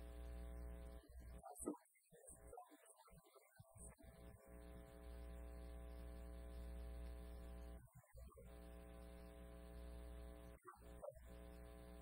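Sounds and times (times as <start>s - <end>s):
faint electrical hum: 0.0s - 12.0s.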